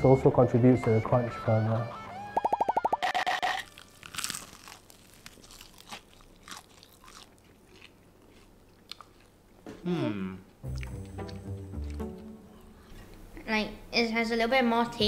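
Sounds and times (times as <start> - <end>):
fried chicken crunching: 3.6 - 9.4.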